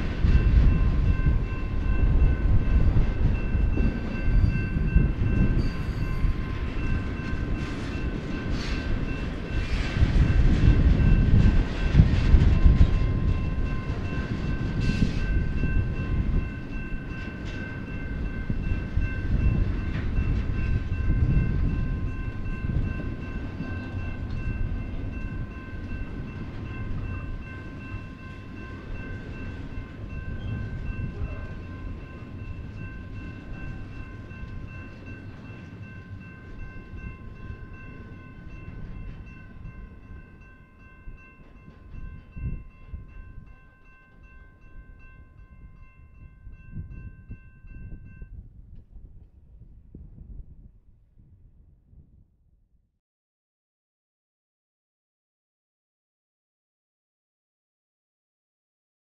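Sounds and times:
crossing warning bell ringing: 0.0 - 48.4
freight train rumbling past: 0.0 - 49.3.

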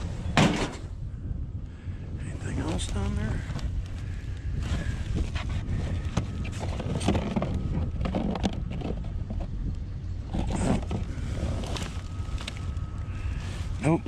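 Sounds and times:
steady low rumble: 0.0 - 14.0
cardboard and plastic rustling: 4.6 - 9.6, 10.3 - 13.9.

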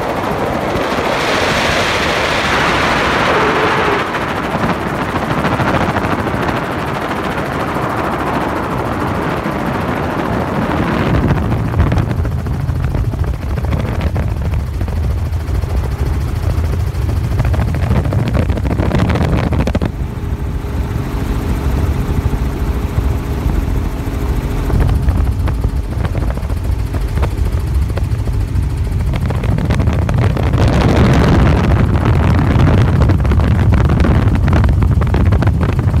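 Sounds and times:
rushing noise: 0.0 - 5.3
helicopter rotor beat: 0.0 - 36.0.

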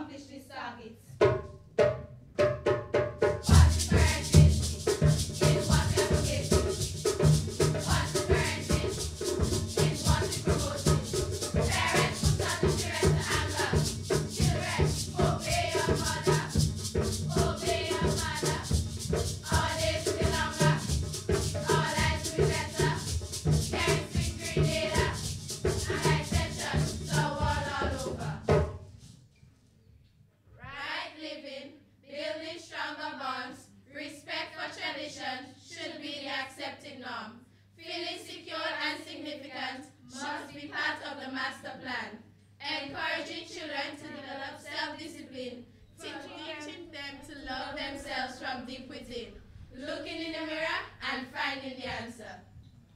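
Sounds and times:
fast percussion beat: 1.2 - 29.1
girls singing together: 3.5 - 6.9, 7.6 - 28.6, 30.6 - 52.5.

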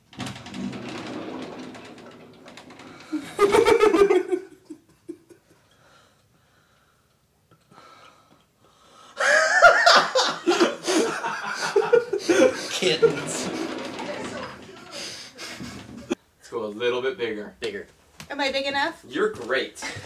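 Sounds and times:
door swinging open: 0.0 - 4.3, 11.6 - 16.2
man laughing loudly: 3.3 - 5.4, 9.2 - 12.7.

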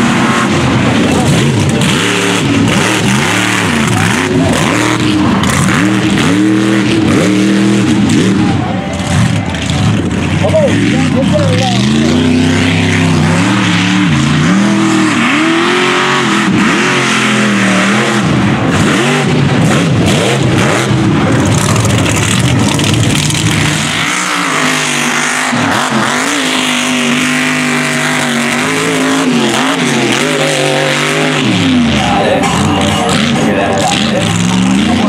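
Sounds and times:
truck engines revving hard: 0.0 - 35.0.

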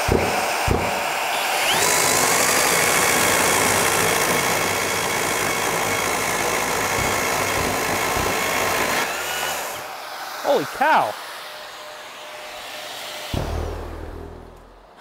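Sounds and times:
chainsaw cutting wooden beam: 0.0 - 10.4
shop vacuum running: 0.0 - 14.4.

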